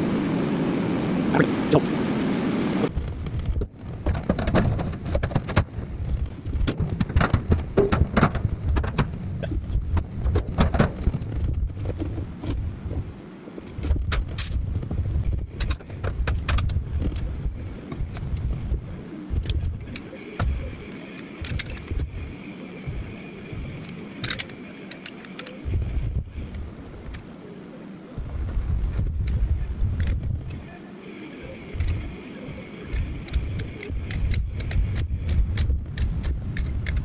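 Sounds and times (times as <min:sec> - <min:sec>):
steady hiss: 0:12.7 - 0:37.0
tools and metal parts clattering: 0:19.4 - 0:22.2, 0:23.7 - 0:26.0.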